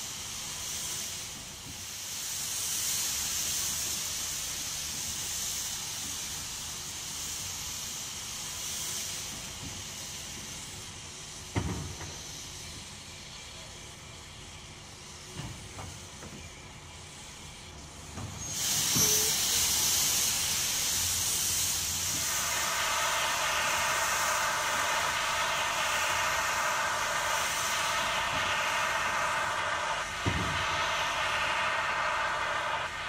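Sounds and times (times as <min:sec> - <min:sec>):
steam hissing with whistling edge: 0:00.0 - 0:33.0.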